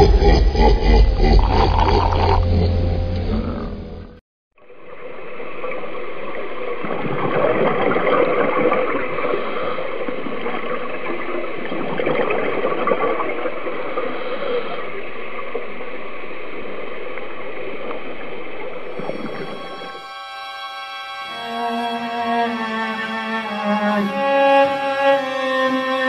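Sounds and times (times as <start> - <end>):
underwater bubbling and gurgling: 4.9 - 20.0.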